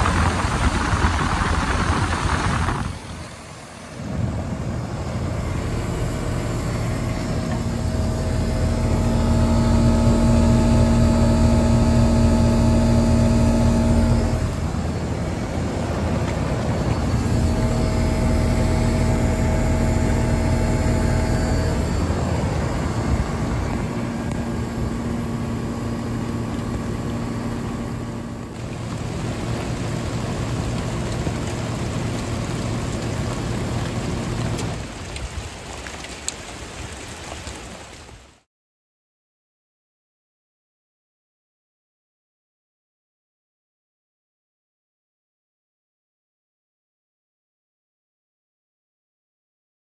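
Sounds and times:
air conditioner compressor humming: 0.0s - 34.8s
condenser fan: 0.0s - 35.8s
rain falling on unit: 0.0s - 38.5s.

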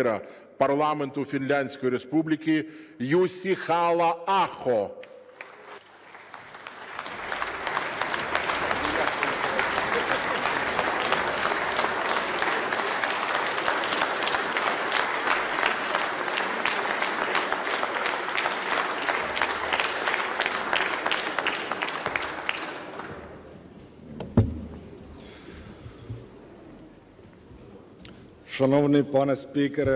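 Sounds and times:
audience applauding: 5.0s - 23.6s.

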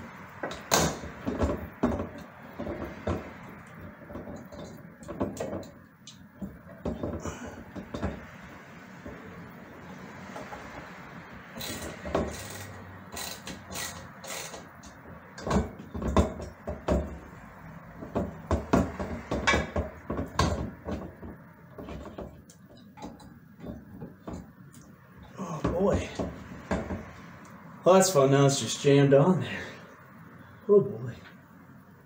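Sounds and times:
metal light fixture knocking: 0.4s - 5.8s, 15.4s - 17.3s, 18.0s - 22.4s.

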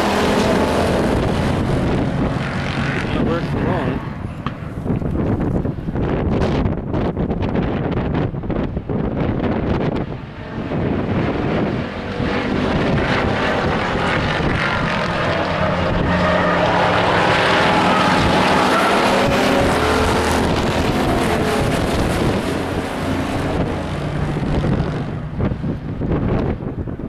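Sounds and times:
race truck engines: 0.0s - 27.0s.

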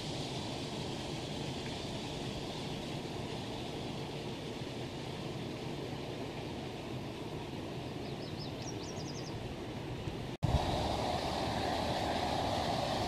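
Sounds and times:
river rushing: 9.5s - 13.0s.

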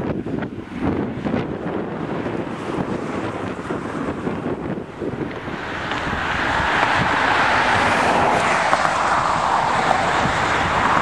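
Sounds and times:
wind buffeting microphone: 0.0s - 11.0s
vehicle passing: 2.4s - 11.0s.

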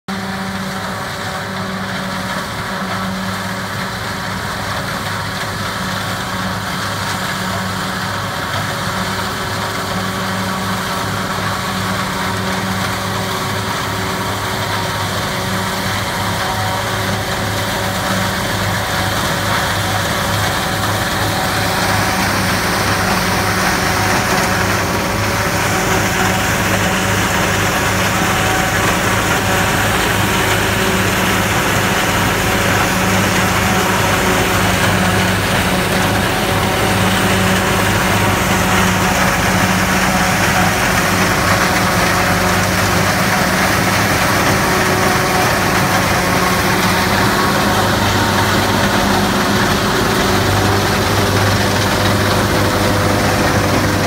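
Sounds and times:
forage harvester engine drone: 0.1s - 54.0s
crop cutting rush: 4.7s - 54.0s.

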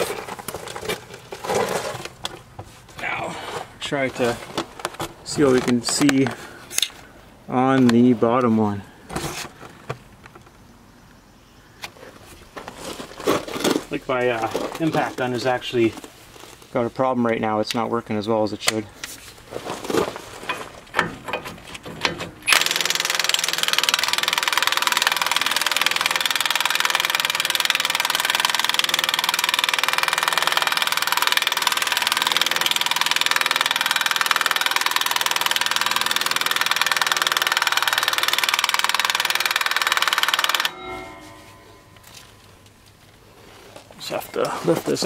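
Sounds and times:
person talking: 3.0s - 4.5s, 5.2s - 6.4s, 13.9s - 16.0s, 44.0s - 45.0s
impact wrench hammering: 20.5s - 42.4s.

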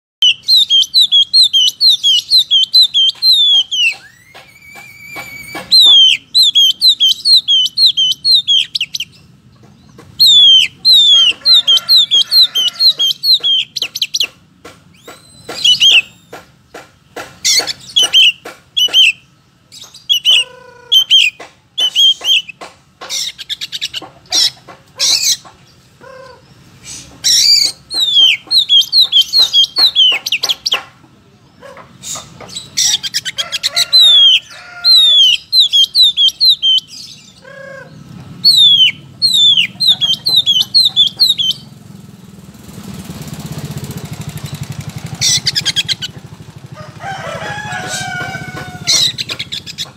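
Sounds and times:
bird singing whistles and clicks: 0.2s - 9.1s, 10.0s - 16.5s, 17.4s - 19.2s, 19.8s - 25.6s, 27.3s - 30.9s, 35.1s - 37.1s, 38.4s - 41.7s, 44.3s - 46.2s, 48.9s - 49.9s.

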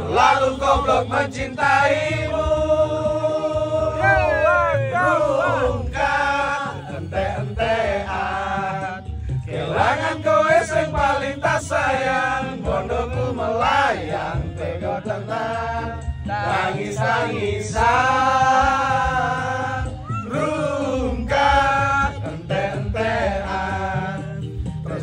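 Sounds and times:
backing music with low beat: 0.0s - 25.0s.

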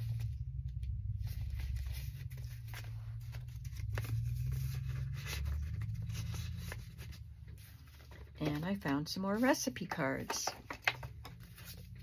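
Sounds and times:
steady low hum: 0.0s - 9.4s
paper cards rustling: 0.0s - 12.0s.

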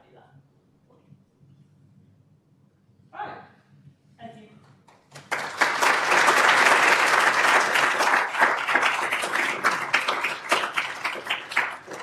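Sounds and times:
audience applauding: 5.1s - 12.0s.

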